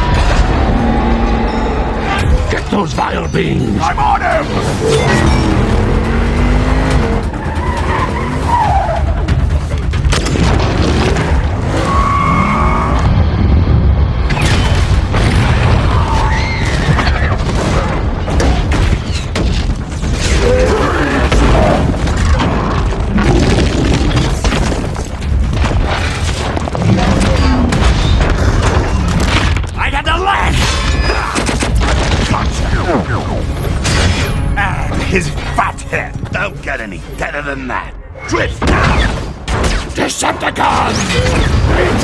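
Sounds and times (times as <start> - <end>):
music: 0.0 - 23.2, 31.0 - 39.6
car engine: 4.4 - 8.9
booming explosions: 12.9 - 29.7.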